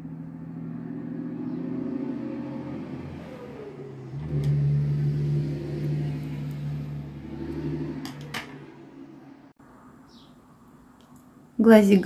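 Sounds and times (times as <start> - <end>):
engine humming: 0.0 - 9.6.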